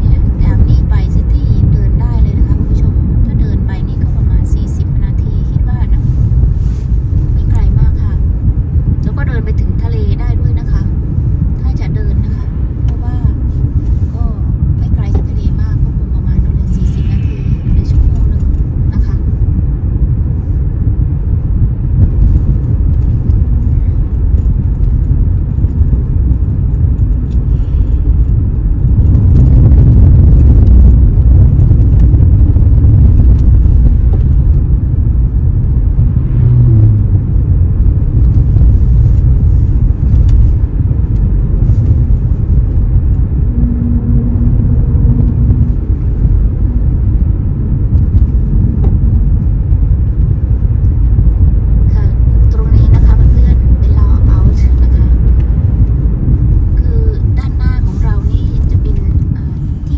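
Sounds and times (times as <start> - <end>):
car road noise rumble: 0.0 - 59.9.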